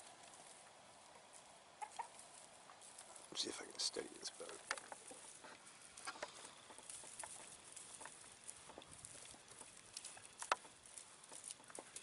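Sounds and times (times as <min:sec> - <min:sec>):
faint outdoor hush: 0:00.0 - 0:12.0
light clicks and taps: 0:04.3 - 0:12.0.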